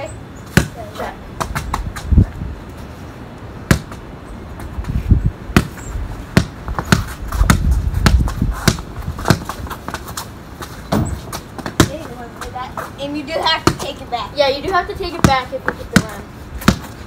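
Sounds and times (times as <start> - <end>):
basketball bouncing on concrete: 0.5 - 2.3, 3.7 - 4.0, 5.5 - 14.0, 14.6 - 17.0.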